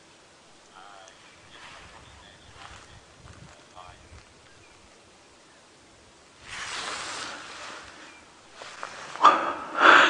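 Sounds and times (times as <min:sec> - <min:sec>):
sharp breaths: 0:08.8 - 0:10.0
person exhaling heavily: 0:09.1 - 0:10.0.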